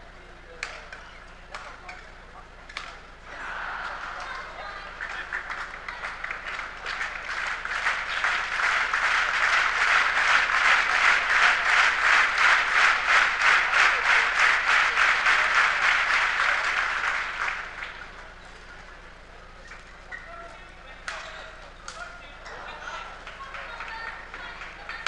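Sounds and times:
crowd clapping in unison: 0:03.4 - 0:18.4, 0:22.5 - 0:25.0.

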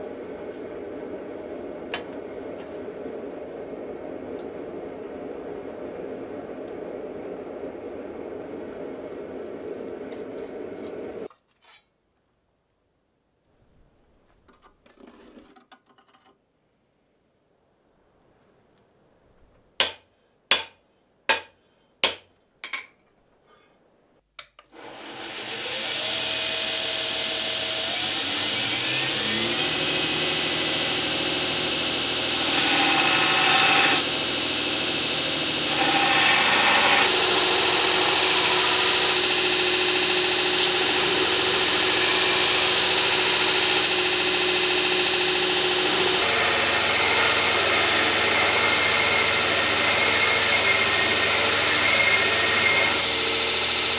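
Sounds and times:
belt grinder motor whine: 0:24.8 - 0:53.9.

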